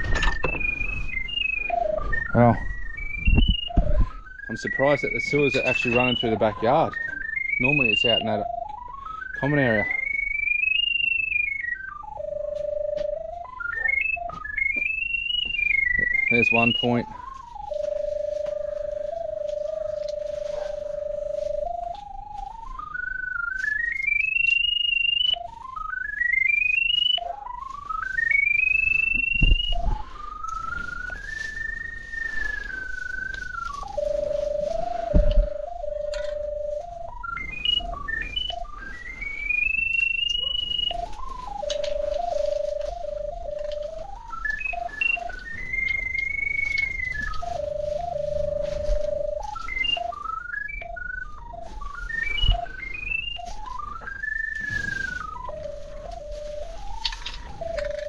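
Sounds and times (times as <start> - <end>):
rising electronic tone: 28.5 - 58.0.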